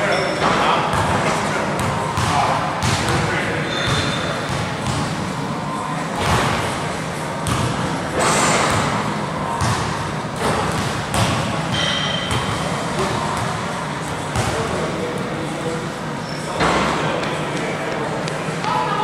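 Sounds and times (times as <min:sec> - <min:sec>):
sneaker squeak: 0:00.0 - 0:00.6, 0:03.6 - 0:05.0, 0:10.7 - 0:13.4, 0:16.1 - 0:17.0
basketball bouncing on court: 0:01.8 - 0:05.2, 0:06.2 - 0:06.6, 0:07.4 - 0:07.8, 0:09.6 - 0:13.5, 0:14.3 - 0:14.6.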